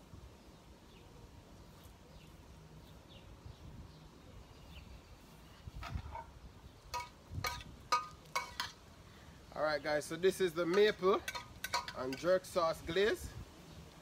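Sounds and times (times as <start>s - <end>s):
utensil clinking on steel pot: 6.9s - 8.8s, 10.7s - 12.3s.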